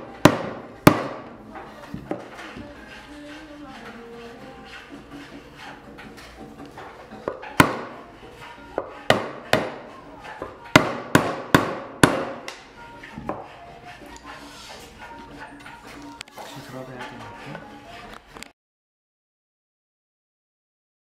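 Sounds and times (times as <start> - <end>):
wooden mallet knocking chair leg: 0.2 - 1.2, 7.2 - 8.0, 8.8 - 9.8, 10.4 - 12.6, 13.2 - 13.5.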